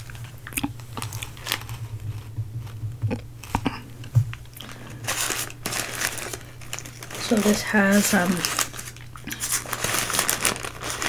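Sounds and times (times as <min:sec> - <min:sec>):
paper wrapper crackling: 0:00.0 - 0:02.3, 0:04.4 - 0:11.0
person chewing: 0:00.0 - 0:07.0, 0:08.7 - 0:09.8
steady low hum: 0:00.0 - 0:11.0.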